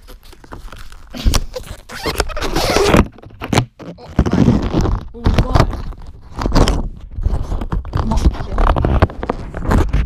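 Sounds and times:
rubbing and scraping on camera: 0.0 - 10.0.

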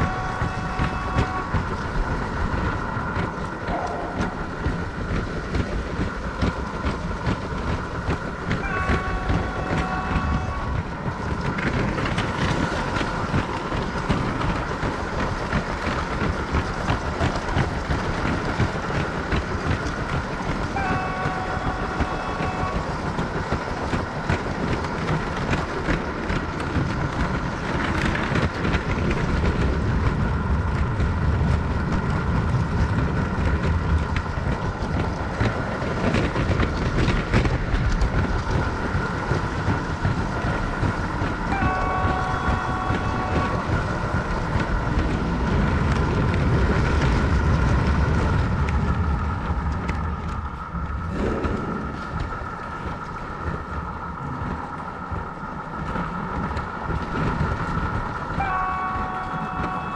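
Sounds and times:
train horn effect: 0.0 - 1.9, 8.6 - 10.9, 20.7 - 23.0, 41.4 - 44.0, 58.3 - 59.9
train engine sound effect: 0.0 - 59.9.

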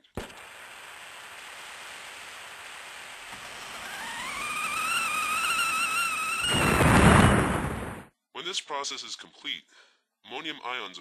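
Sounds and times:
flamethrower rushing flame: 0.1 - 8.1
pressure cooker steam whistle: 3.8 - 7.3.

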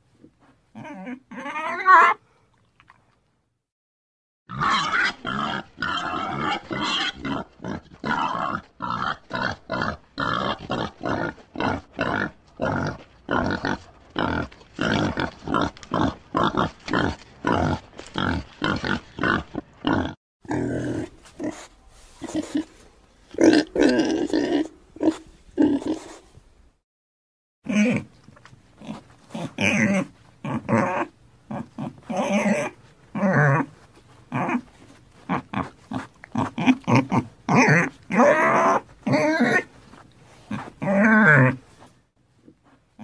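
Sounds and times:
pigs grunting and squealing: 0.8 - 2.2, 4.5 - 22.7, 23.3 - 26.2, 27.7 - 28.2, 28.8 - 39.8, 40.5 - 41.6.

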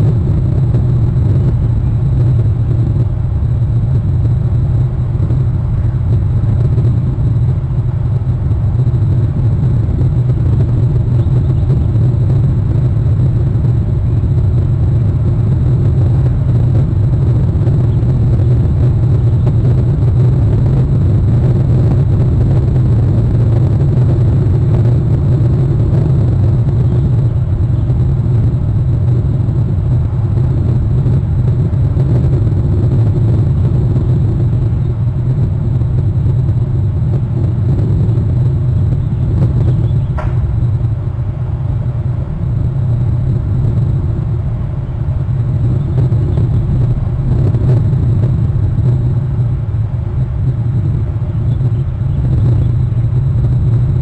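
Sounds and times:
steady low rumble: 0.0 - 54.0
brief sharp sound: 40.1 - 40.6.

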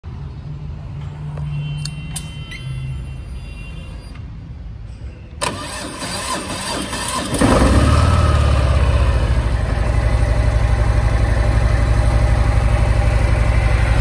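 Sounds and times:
motorcycle engine cranking: 5.4 - 9.5.

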